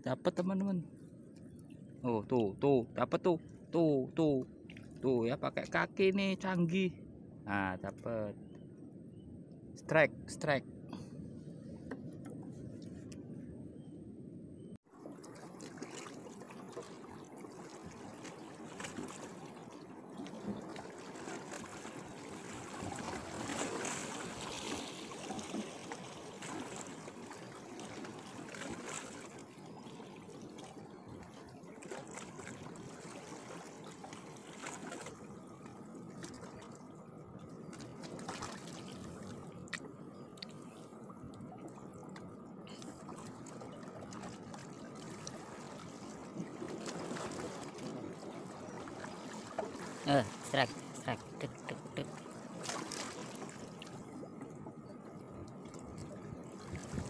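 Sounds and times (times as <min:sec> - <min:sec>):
small waves lapping at shore: 0:14.8 - 0:57.0.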